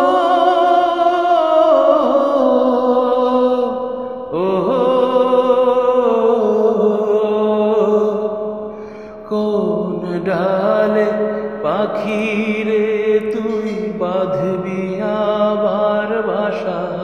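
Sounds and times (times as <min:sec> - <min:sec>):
man singing folk song: 0:09.3 - 0:17.0.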